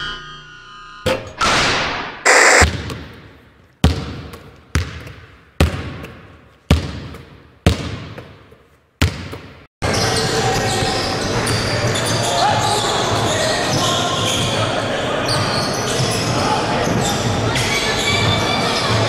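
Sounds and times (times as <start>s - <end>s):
basketball bouncing with echo: 2.6s - 8.4s, 9.0s - 9.6s.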